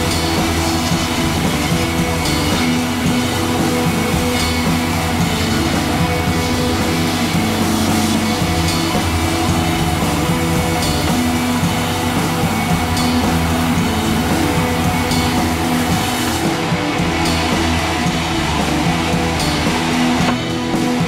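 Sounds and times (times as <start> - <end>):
rock music with guitar and drums: 0.0 - 21.0.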